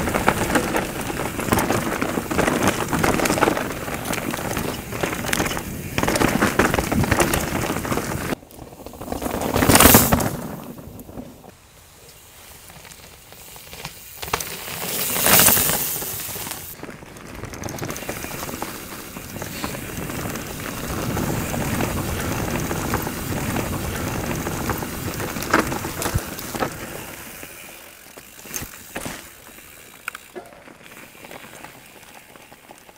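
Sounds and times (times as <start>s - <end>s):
bike rattling: 0.0s - 32.9s
bike tyres on dirt trail: 0.0s - 32.9s.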